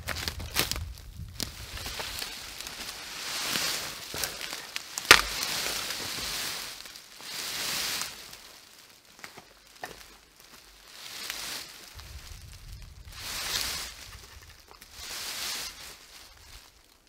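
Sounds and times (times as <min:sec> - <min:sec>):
twig snapping: 0:00.0 - 0:07.0
boughs scraping over forest litter: 0:00.0 - 0:17.0.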